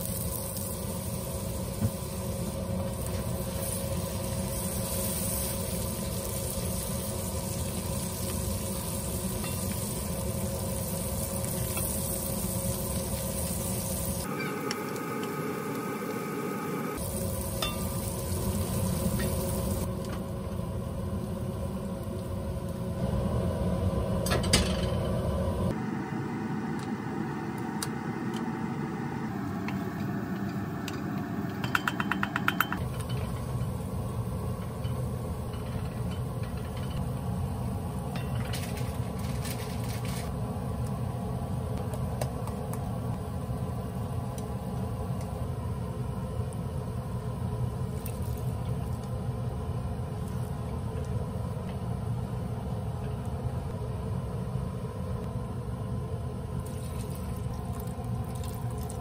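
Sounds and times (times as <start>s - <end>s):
onions sizzling in a pot: 0.0s - 25.7s, 32.8s - 59.0s.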